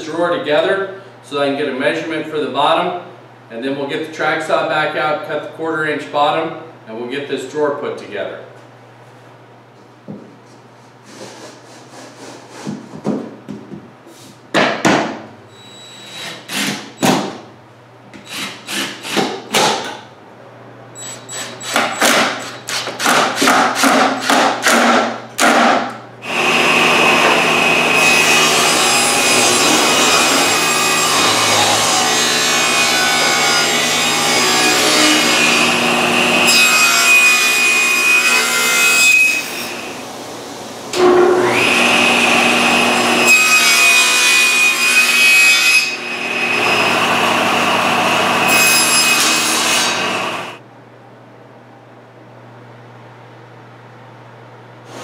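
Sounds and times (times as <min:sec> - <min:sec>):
power saw cutting wood: 0:16.1 - 0:17.0, 0:21.0 - 0:24.9, 0:26.2 - 0:39.9, 0:41.0 - 0:50.6.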